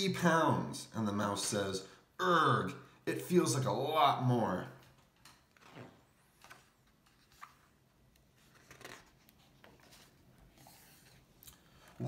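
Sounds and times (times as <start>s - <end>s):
book page turning: 5.2s - 12.0s.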